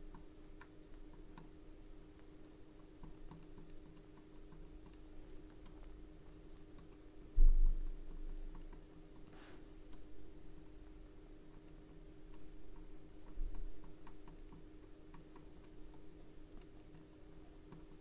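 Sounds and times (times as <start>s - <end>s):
steady hum: 0.0s - 18.0s
light clicks and taps: 2.1s - 10.1s
heavy low thump: 7.4s - 7.8s.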